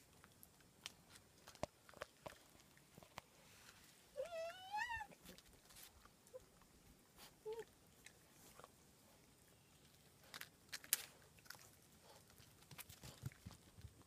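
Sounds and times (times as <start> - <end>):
puppy whimper: 4.2 - 5.2
puppy whining: 4.2 - 5.4, 7.2 - 7.7
paws clicking on concrete: 10.3 - 14.0.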